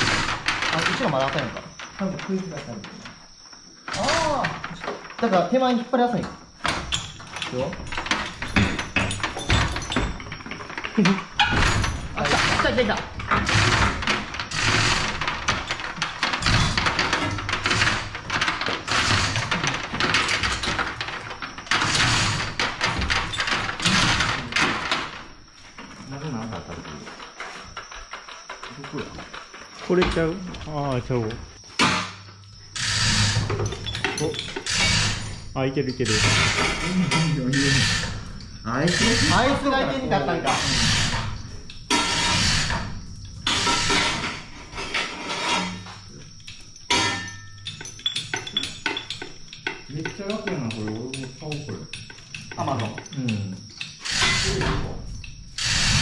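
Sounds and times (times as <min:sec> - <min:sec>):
hoist chain rattling: 0:00.0 - 0:56.0
metallic knocks and scrapes: 0:06.5 - 0:56.0
power tool bursts: 0:32.8 - 0:33.7, 0:34.6 - 0:35.4, 0:38.8 - 0:39.8, 0:54.0 - 0:55.0, 0:55.6 - 0:56.0.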